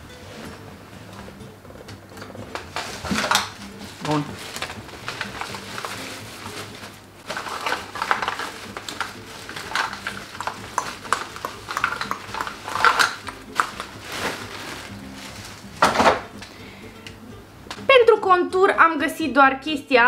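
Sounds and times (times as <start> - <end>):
plastic packaging clicks and rattles: 2.2 - 16.3.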